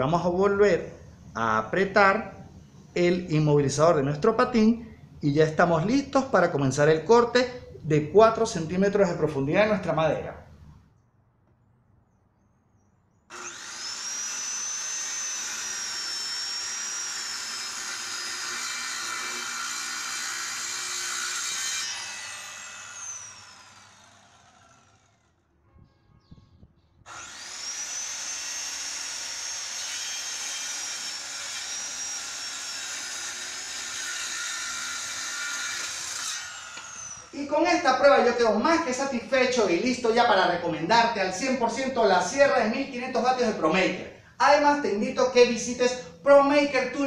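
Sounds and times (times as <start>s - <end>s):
circular saw cutting wood: 13.3s - 25.4s, 27.1s - 38.4s.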